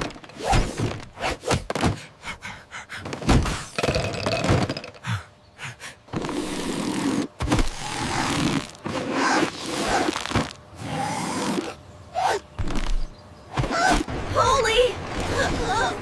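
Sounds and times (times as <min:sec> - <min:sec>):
cartoon thunks and knocks: 0:03.0 - 0:04.9.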